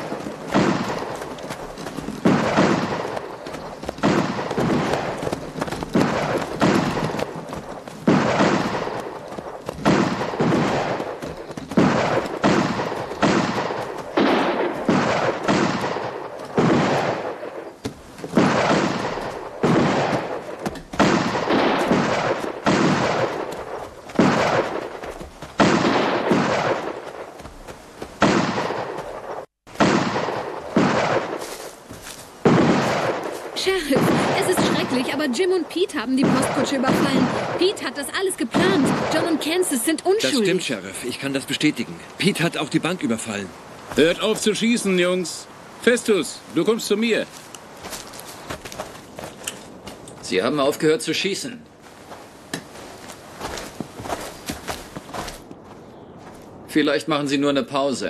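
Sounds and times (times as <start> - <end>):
gunshots with echoing tail: 0.0 - 41.3.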